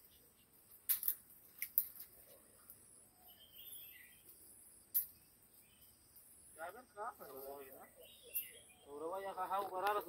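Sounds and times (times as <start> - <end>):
bird chirping: 1.8 - 10.0.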